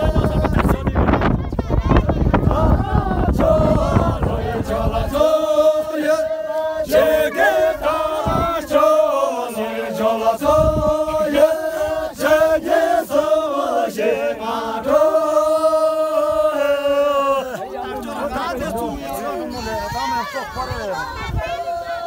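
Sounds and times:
wind buffeting microphone: 0:00.0 - 0:06.2, 0:06.8 - 0:09.4, 0:10.0 - 0:13.5, 0:18.6 - 0:22.0
men chanting in unison: 0:00.0 - 0:22.0.

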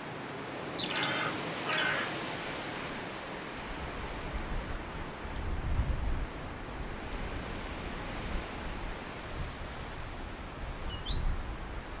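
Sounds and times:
robin singing faintly: 0:00.1 - 0:02.0, 0:07.7 - 0:12.0.

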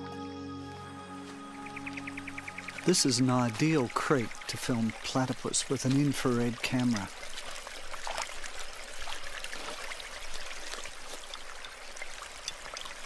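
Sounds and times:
creek water babbling: 0:00.6 - 0:13.0.

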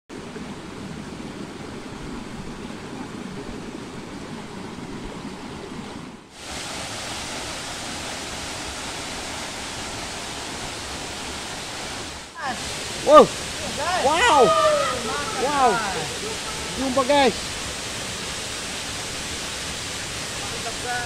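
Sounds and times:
forest stream running: 0:00.1 - 0:21.0
small waterfall pouring: 0:06.3 - 0:21.0.

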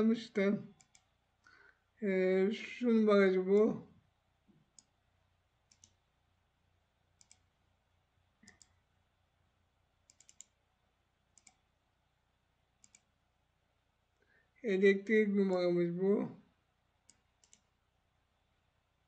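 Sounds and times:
keyboard clicks: 0:00.7 - 0:01.1, 0:05.7 - 0:06.0, 0:07.2 - 0:07.5, 0:08.4 - 0:08.8, 0:10.1 - 0:10.6, 0:11.3 - 0:11.6, 0:12.8 - 0:13.1, 0:17.0 - 0:17.7
computer mouse clicks: 0:00.7 - 0:01.2, 0:04.6 - 0:05.0, 0:05.6 - 0:06.0, 0:07.2 - 0:07.5, 0:08.4 - 0:08.8, 0:10.0 - 0:10.6, 0:11.3 - 0:11.7, 0:12.8 - 0:13.2, 0:17.0 - 0:17.7.

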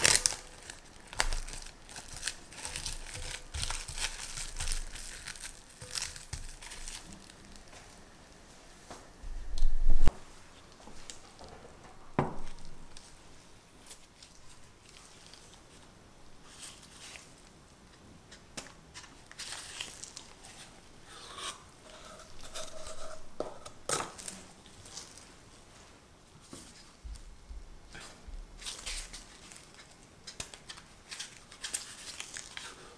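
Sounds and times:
paper crinkling and tearing: 0:00.0 - 0:08.0, 0:18.9 - 0:20.7, 0:28.6 - 0:32.9.

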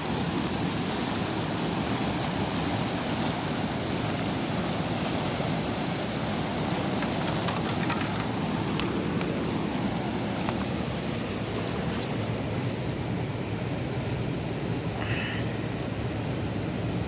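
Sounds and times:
white-water river rushing: 0:00.0 - 0:17.0
faint clicks and taps: 0:07.0 - 0:09.4.

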